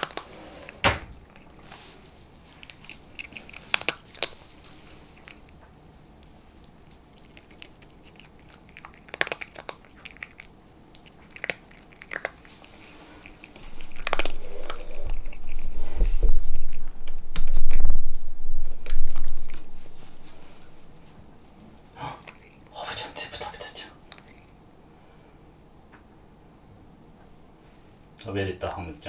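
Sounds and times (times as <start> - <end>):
cat crunching food: 0.0 - 5.6, 6.2 - 19.9, 21.6 - 24.6.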